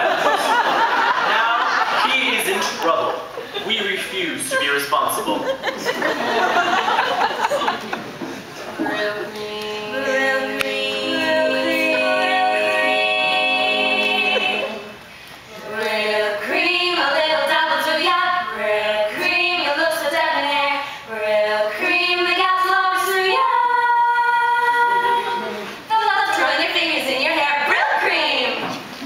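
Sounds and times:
vocal group singing in harmony: 0:08.5 - 0:28.6.

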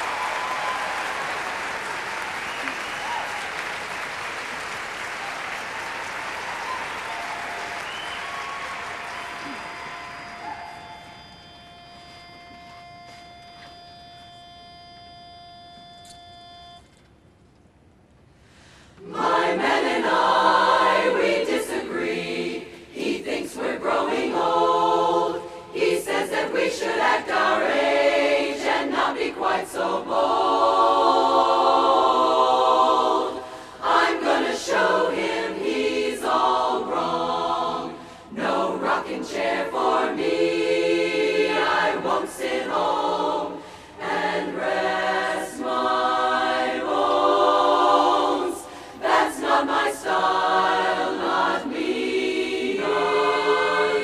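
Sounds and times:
women's chorus singing in harmony: 0:05.4 - 0:12.2, 0:19.0 - 0:54.0.

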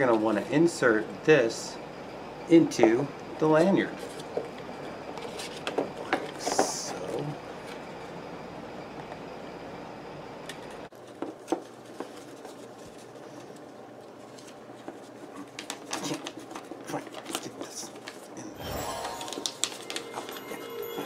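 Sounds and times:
steady low hum: 0:00.0 - 0:10.9.

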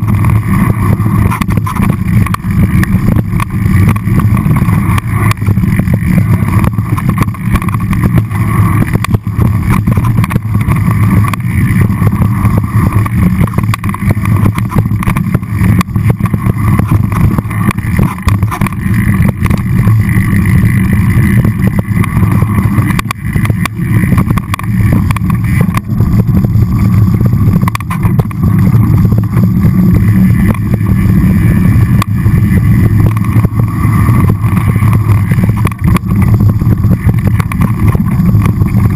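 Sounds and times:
bike rattling over rocks: 0:00.0 - 0:38.9
wind buffeting microphone: 0:00.0 - 0:38.9.

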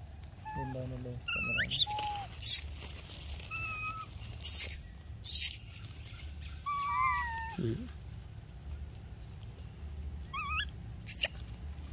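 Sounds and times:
baby monkey squealing: 0:00.4 - 0:02.7, 0:03.5 - 0:05.6, 0:06.7 - 0:07.6, 0:10.3 - 0:11.4.

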